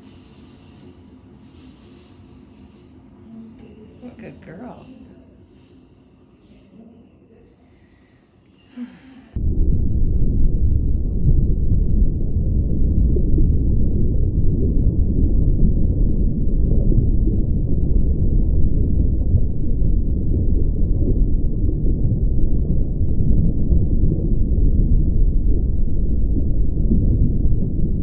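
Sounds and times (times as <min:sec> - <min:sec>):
steady low rumble: 0:09.2 - 0:28.0.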